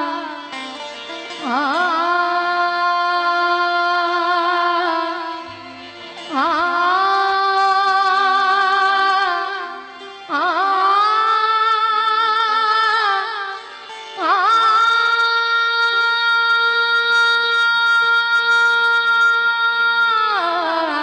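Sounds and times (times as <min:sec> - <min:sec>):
woman singing long notes: 0:06.3 - 0:13.6, 0:14.2 - 0:21.0.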